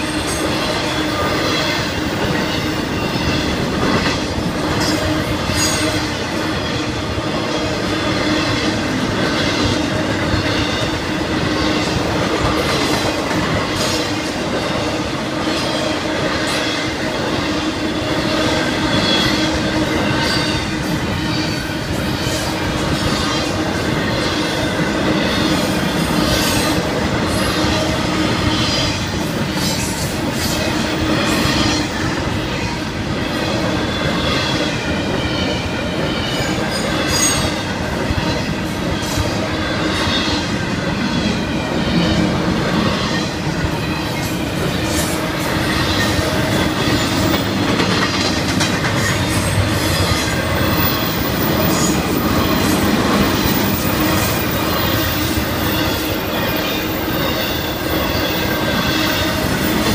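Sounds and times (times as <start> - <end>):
freight train wheels clattering: 0.0 - 59.9
steel wheel squeal: 17.9 - 48.2, 48.9 - 59.9.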